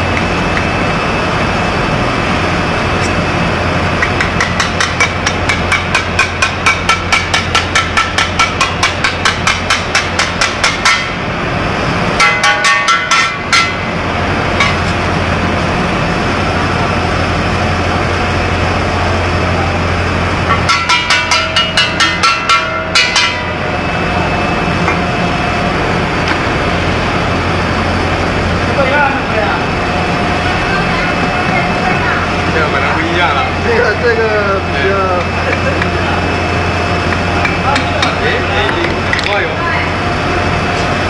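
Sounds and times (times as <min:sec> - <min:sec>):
steady low hum: 0:00.0 - 0:41.0
ringing metal knocks: 0:12.2 - 0:13.8, 0:20.5 - 0:23.6.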